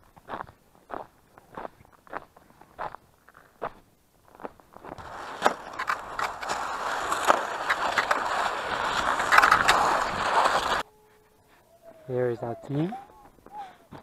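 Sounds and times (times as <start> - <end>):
crunching strides on snow: 0.2 - 10.8
ski poles crunching into snow: 4.9 - 10.8
skis scraping on snow: 4.9 - 10.8.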